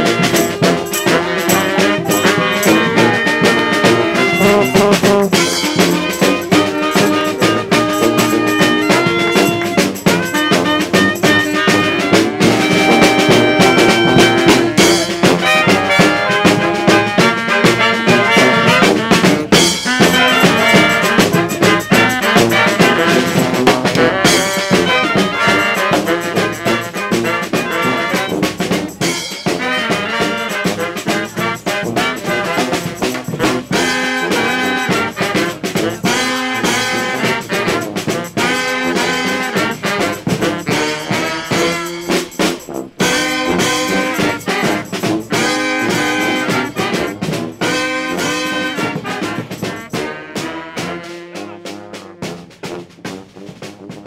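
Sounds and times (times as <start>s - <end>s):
brass band music: 0.0s - 54.0s.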